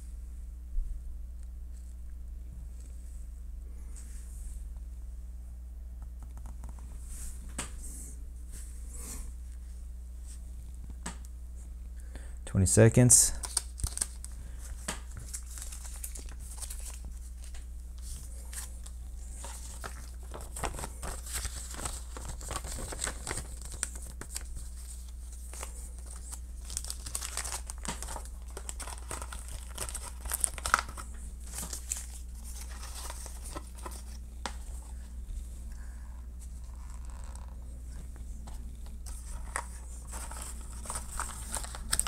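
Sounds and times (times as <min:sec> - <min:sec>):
steady low hum: 0:00.0 - 0:42.0
wrappers crinkling and rustling: 0:13.3 - 0:35.0, 0:38.8 - 0:42.0.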